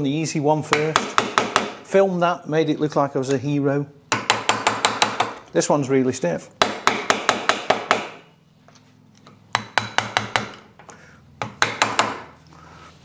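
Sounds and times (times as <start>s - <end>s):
hammer tapping metal: 6.6s - 8.3s, 9.5s - 12.4s.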